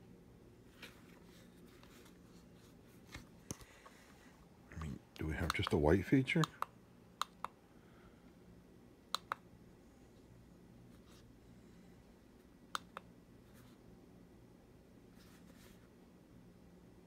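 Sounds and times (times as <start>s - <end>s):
faint steady hum: 0.0s - 17.0s.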